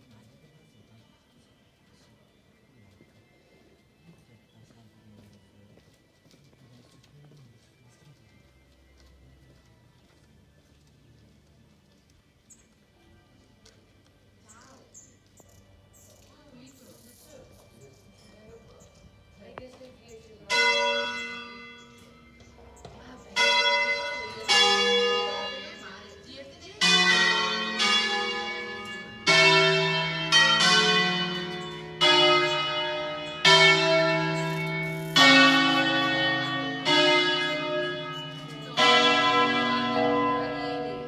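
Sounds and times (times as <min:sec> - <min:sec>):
church bells ringing: 0:17.6 - 0:41.0.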